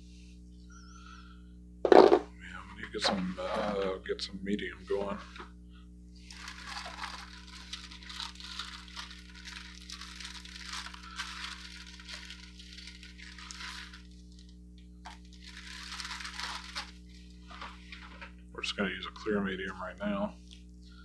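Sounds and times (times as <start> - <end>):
low electrical hum: 0.0 - 21.0
rustling handling noise: 6.2 - 18.4.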